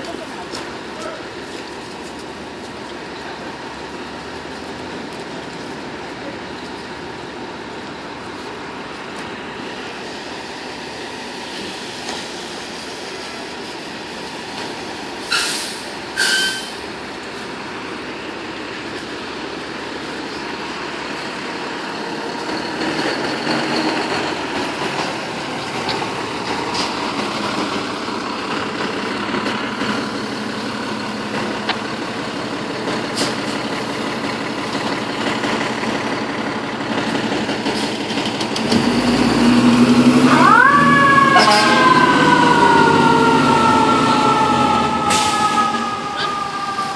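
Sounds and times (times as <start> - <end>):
diesel engine running: 0.0 - 46.9
air brake hisses: 15.2 - 16.8.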